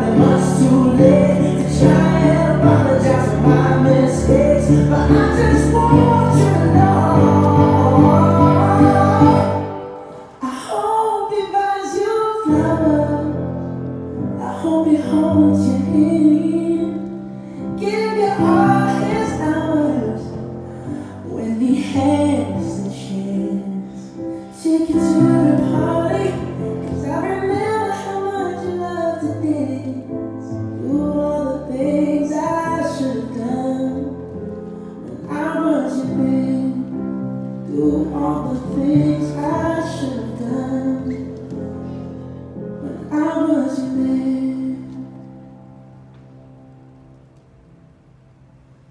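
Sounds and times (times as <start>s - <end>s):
held instrumental accompaniment: 0.0s - 10.4s
woman singing slow song: 14.4s - 20.4s.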